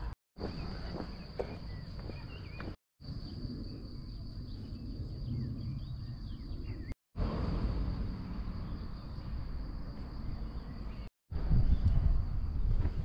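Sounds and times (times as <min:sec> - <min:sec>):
small birds chirping: 0:00.4 - 0:07.0
insects chirring: 0:00.4 - 0:11.1.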